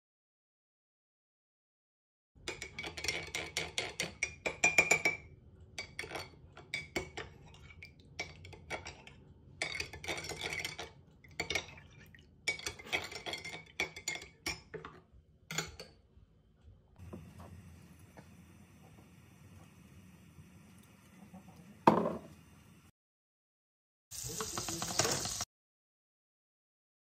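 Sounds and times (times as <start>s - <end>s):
metal spoon clinking in glass mug: 2.5s - 15.9s.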